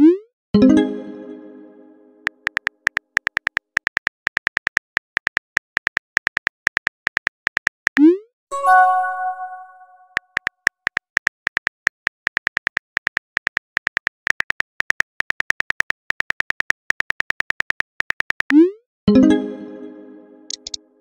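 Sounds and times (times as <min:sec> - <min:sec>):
phone keyboard clicks: 0:02.4 - 0:08.0, 0:20.5 - 0:20.8
ringing chime: 0:08.5 - 0:10.0.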